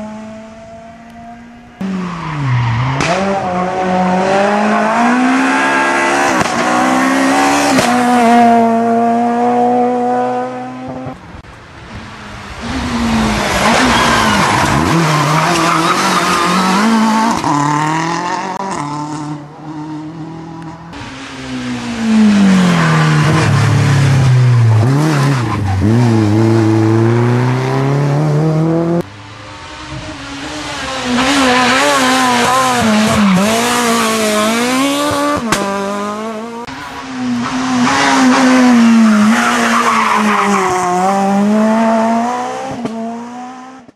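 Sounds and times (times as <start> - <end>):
rally car engines revving: 0.0 - 43.9
tyre squeal: 13.6 - 17.0.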